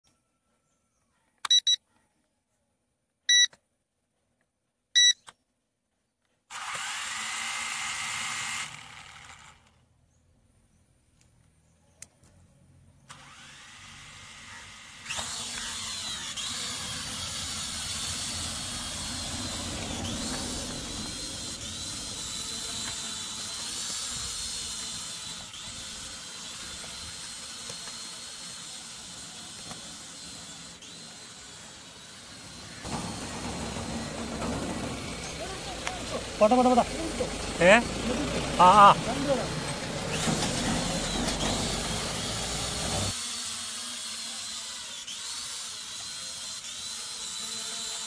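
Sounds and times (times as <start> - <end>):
drone motors whining: 6.5 - 9.8, 13.1 - 48.0.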